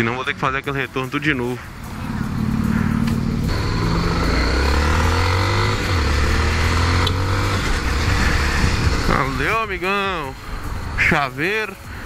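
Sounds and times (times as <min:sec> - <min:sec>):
motorcycle engine accelerating: 0:01.8 - 0:09.6
wind rushing over microphone: 0:07.6 - 0:11.0.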